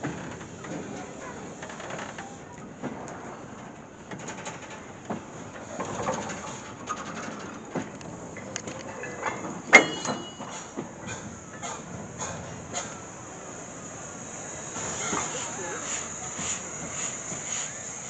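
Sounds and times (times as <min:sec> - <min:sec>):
wheels clicking over rail joints: 0:00.0 - 0:18.0
metallic clank with squeal: 0:09.0 - 0:11.8.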